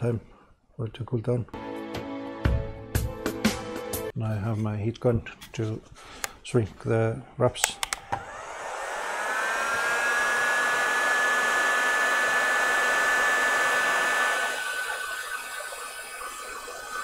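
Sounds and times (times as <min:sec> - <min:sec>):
heat gun fan whining: 0:07.6 - 0:17.0.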